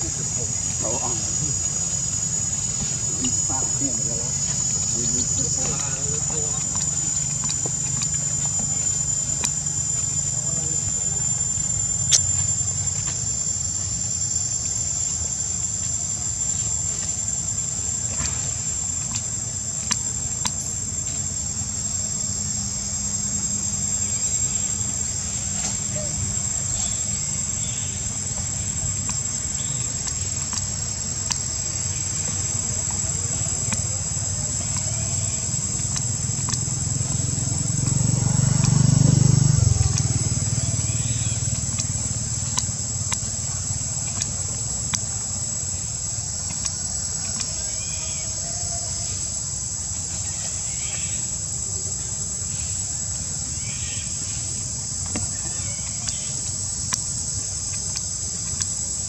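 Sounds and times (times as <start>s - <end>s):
low rumble: 0.0s - 30.4s
insects droning: 0.0s - 59.0s
low background hum: 0.0s - 59.0s.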